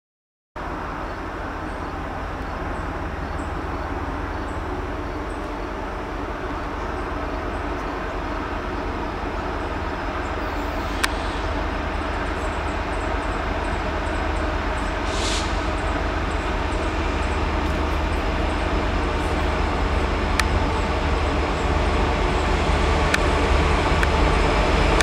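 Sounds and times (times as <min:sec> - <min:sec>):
diesel locomotives rumbling: 0:00.6 - 0:25.0
short hiss: 0:15.0 - 0:15.8.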